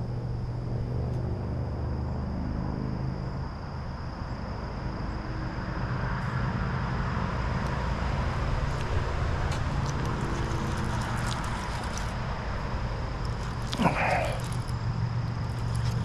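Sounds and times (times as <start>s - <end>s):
distant motor droning: 4.1s - 16.0s.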